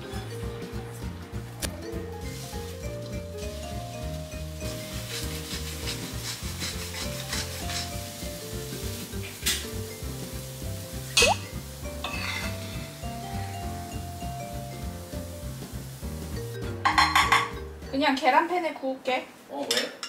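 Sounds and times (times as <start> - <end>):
eggs sizzling: 0.0 - 17.9
background music: 0.0 - 18.6
spatula scraping a pan: 4.6 - 9.7, 12.0 - 13.0.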